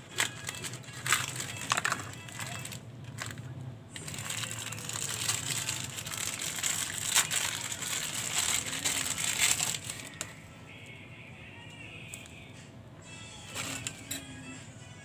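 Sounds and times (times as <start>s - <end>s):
plastic packet crinkling: 0.0s - 3.4s, 4.0s - 10.3s, 13.5s - 14.0s.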